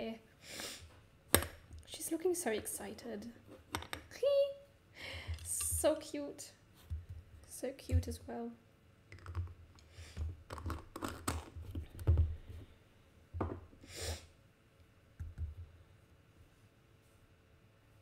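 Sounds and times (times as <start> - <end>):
art supplies clicking and knocking: 3.7 - 4.1, 9.1 - 9.6, 10.2 - 12.3.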